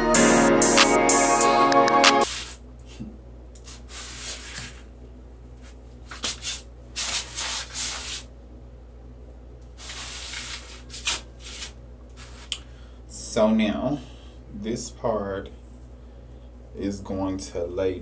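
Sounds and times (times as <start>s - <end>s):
hands rubbing hair: 2.2s - 2.6s, 3.6s - 4.9s, 5.6s - 8.3s, 9.8s - 12.6s
steady low hum: 2.2s - 18.0s.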